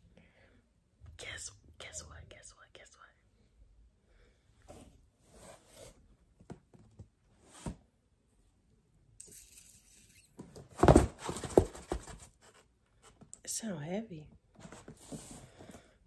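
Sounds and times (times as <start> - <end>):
cardboard box rustling: 10.6 - 12.6.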